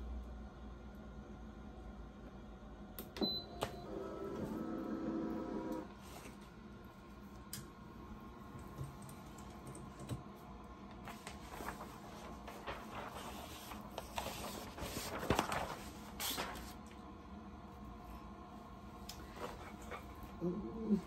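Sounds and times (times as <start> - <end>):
paper and fabric rustling: 11.0 - 16.9.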